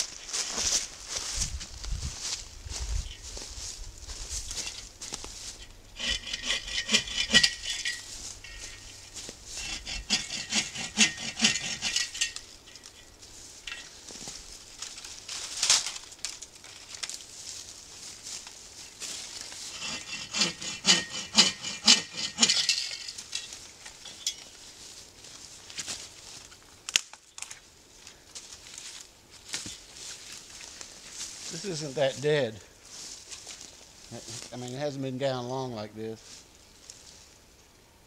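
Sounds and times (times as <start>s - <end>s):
saw scrape: 4.5s - 12.4s, 19.0s - 23.6s
bow saw cutting wood: 6.0s - 12.4s, 19.5s - 23.0s.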